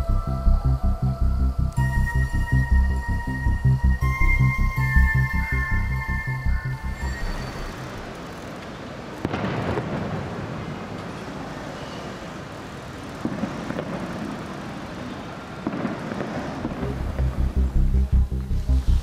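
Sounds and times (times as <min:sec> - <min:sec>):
city street noise: 0:00.0 - 0:19.0
tram rumbling on rails: 0:06.6 - 0:19.0.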